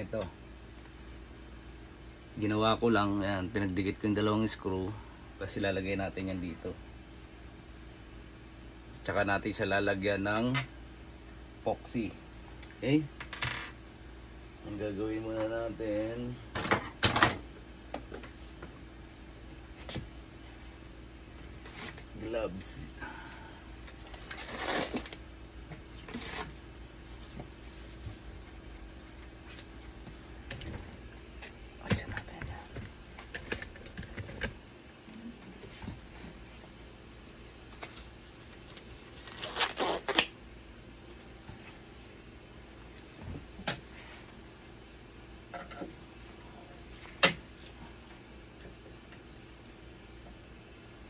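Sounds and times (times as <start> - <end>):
faint steady hum: 0.0 - 51.0
rubber gloves rustling and stretching: 23.6 - 30.4, 35.6 - 40.3.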